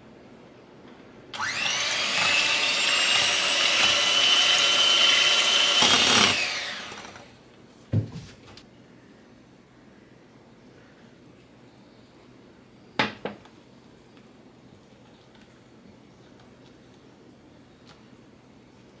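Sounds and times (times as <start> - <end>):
electric hand mixer whirring: 1.4 - 7.4.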